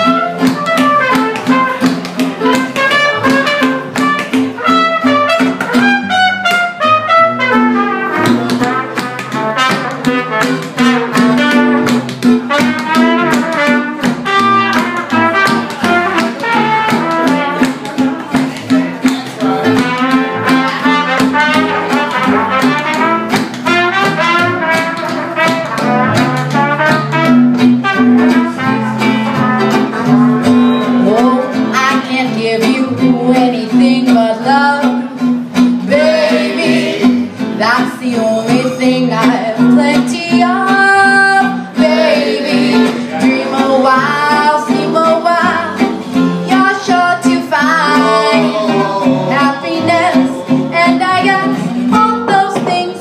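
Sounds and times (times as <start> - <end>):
acoustic guitar: 0.0 - 53.0
plucked upright bass: 0.0 - 53.0
woman singing: 30.9 - 35.2, 35.9 - 53.0.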